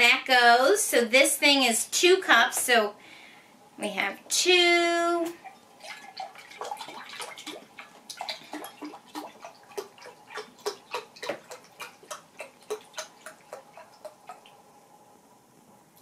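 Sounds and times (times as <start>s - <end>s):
liquid glugging into glass cup: 5.4s - 14.6s.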